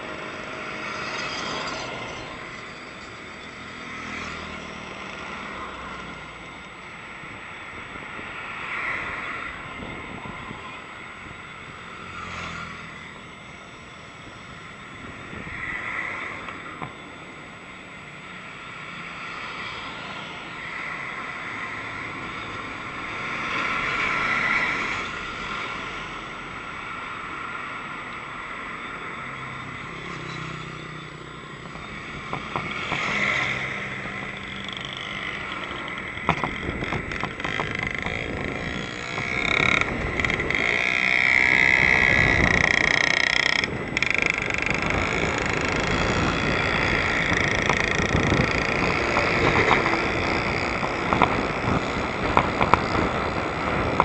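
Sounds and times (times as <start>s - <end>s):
road traffic passing: 0.0s - 54.0s
sharp rattling clicks: 34.0s - 54.0s.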